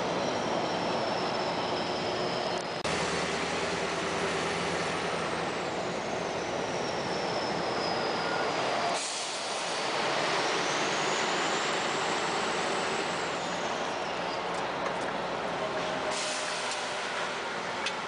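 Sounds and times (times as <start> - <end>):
thin high whistle: 6.0 - 9.8.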